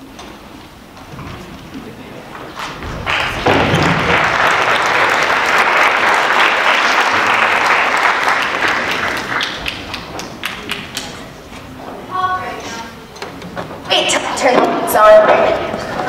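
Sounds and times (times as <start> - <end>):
audience applauding: 2.3 - 11.4.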